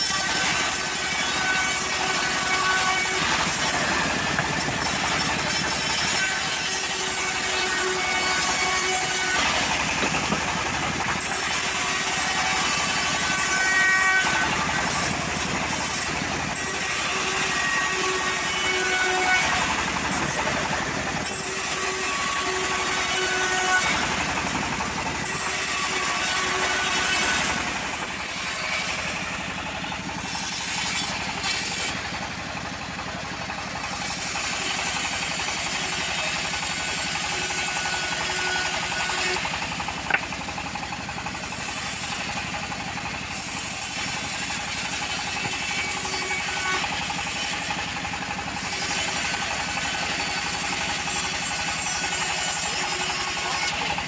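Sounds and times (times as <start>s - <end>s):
blade hissing through wood: 0.0s - 32.2s
bandsaw mill engine running: 0.0s - 54.0s.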